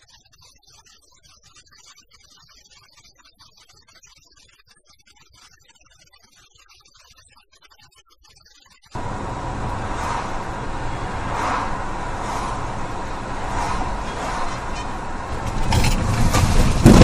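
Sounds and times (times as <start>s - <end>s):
car engine rumble: 9.0s - 17.0s
road noise: 9.0s - 17.0s.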